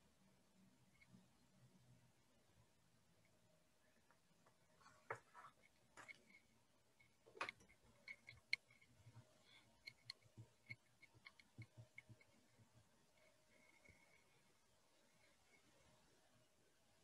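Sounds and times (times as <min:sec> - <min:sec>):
faint small clicks and taps: 0:04.0 - 0:14.3.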